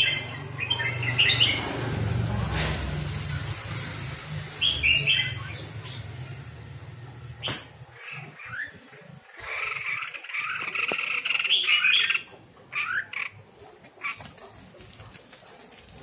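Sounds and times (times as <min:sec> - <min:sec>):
bird chirping and calling: 0:00.0 - 0:02.2, 0:03.3 - 0:06.6, 0:07.3 - 0:15.0.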